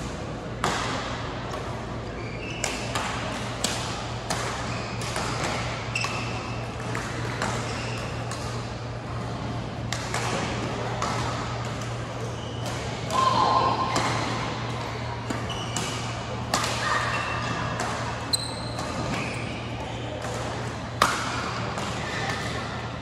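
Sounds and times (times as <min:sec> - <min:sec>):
steady low hum: 0:00.0 - 0:23.0
shoe squeaks: 0:02.1 - 0:02.9, 0:12.3 - 0:12.7, 0:15.4 - 0:16.2, 0:18.3 - 0:20.0
racket hitting shuttlecock: 0:20.2 - 0:22.6.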